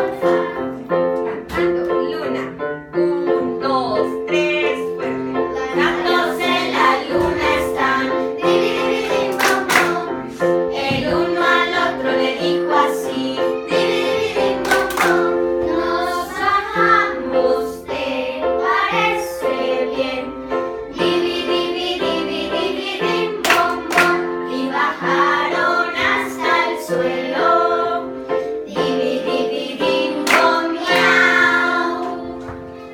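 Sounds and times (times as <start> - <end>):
children singing: 0.0 - 1.8, 4.4 - 32.9.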